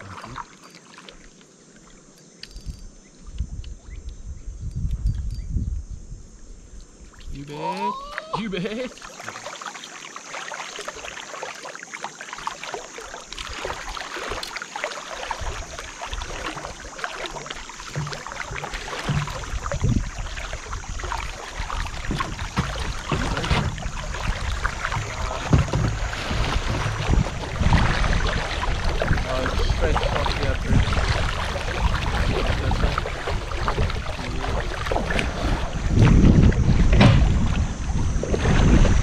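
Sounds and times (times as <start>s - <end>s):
wind rumble on microphone: 2.5s - 7.4s, 15.3s - 16.8s, 17.9s - 39.0s
river water rushing and splashing: 8.8s - 39.0s.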